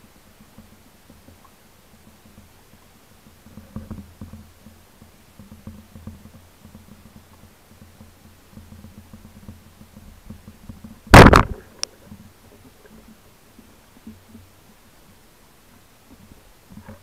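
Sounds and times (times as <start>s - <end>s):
faint low water rumble: 0.0s - 17.0s
speargun firing crack: 11.2s - 11.7s.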